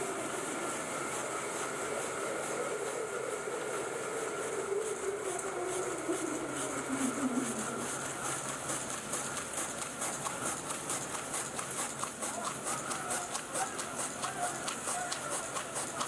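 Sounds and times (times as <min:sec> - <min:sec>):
machine drone: 0:00.0 - 0:09.5
machine chopping wood veneer: 0:05.4 - 0:16.0.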